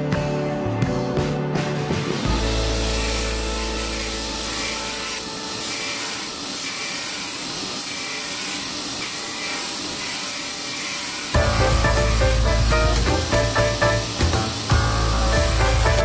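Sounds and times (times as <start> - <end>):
music: 0.0 - 6.4, 11.4 - 16.0
belt grinder grinding steel: 2.1 - 16.0.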